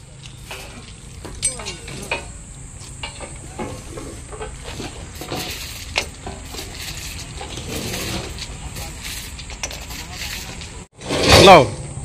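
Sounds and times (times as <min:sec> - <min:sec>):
metal tools clinking: 0:00.2 - 0:10.9
stones scraping: 0:02.0 - 0:11.5.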